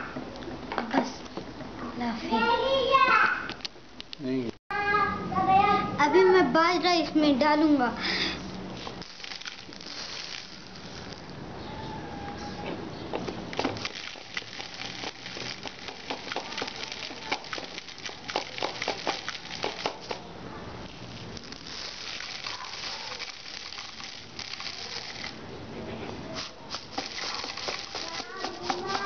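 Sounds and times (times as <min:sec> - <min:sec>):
grain pouring into plastic bottle: 0:09.0 - 0:11.3, 0:13.6 - 0:20.2, 0:21.3 - 0:25.4, 0:26.3 - 0:29.0.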